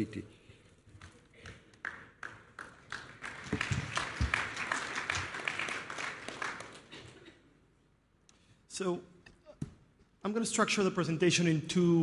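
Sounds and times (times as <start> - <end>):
audience applauding: 1.4 - 7.2.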